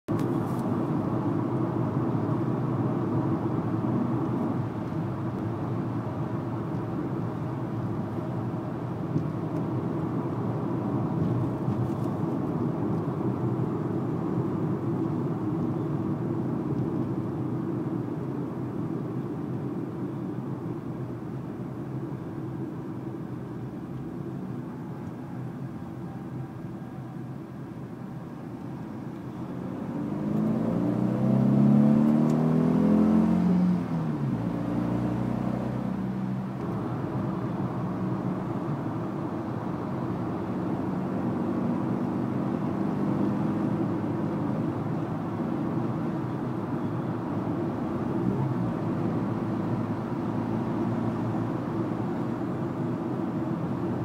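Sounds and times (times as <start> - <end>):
road noise: 0.1 - 54.0
car engine accelerating: 29.0 - 54.0.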